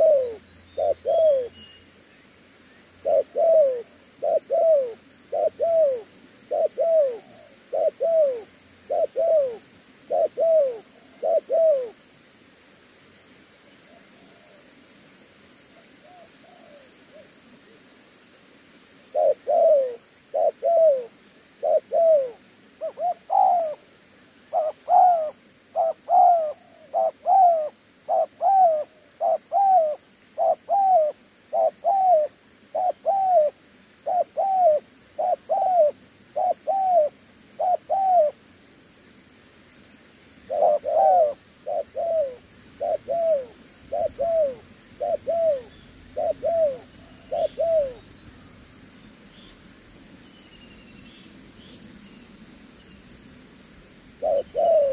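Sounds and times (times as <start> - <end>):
dove cooing: 0.0 - 1.6, 3.0 - 12.0, 13.9 - 14.6, 16.0 - 17.3, 19.1 - 23.8, 24.5 - 38.4, 40.5 - 48.1, 54.2 - 54.9.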